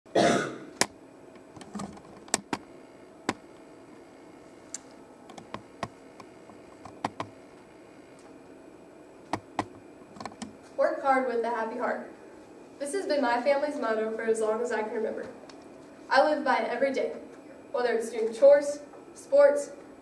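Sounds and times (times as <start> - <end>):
sharp clicks and taps: 4.7 - 7.4, 9.3 - 10.6.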